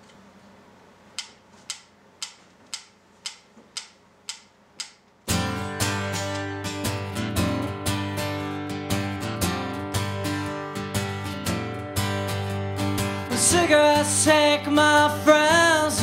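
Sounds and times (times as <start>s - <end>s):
sharp ticks: 1.2s - 5.0s
acoustic guitar strumming chords: 5.3s - 16.0s.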